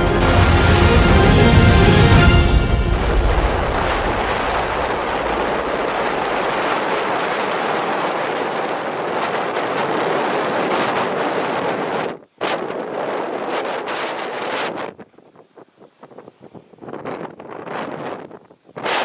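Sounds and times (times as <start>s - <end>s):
sea waves: 0.0s - 10.6s
wind rushing over microphone: 0.0s - 19.0s.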